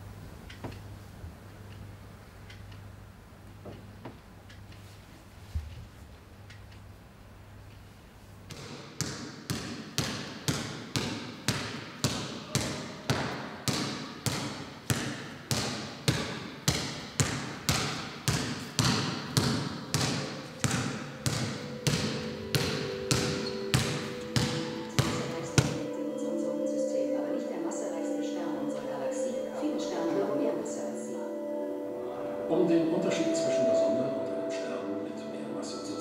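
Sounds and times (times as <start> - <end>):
basketball dribbling on gym floor: 8.5 - 25.8.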